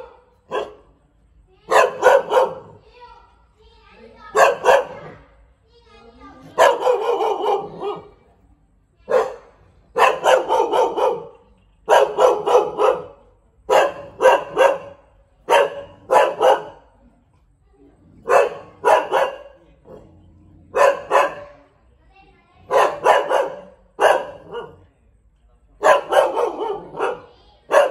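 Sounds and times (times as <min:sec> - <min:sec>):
dog barking: 0:00.0 - 0:00.9, 0:01.7 - 0:02.8, 0:04.3 - 0:05.2, 0:06.4 - 0:08.1, 0:09.1 - 0:16.9, 0:18.2 - 0:20.0, 0:20.7 - 0:21.6, 0:22.6 - 0:24.9, 0:25.8 - 0:27.9.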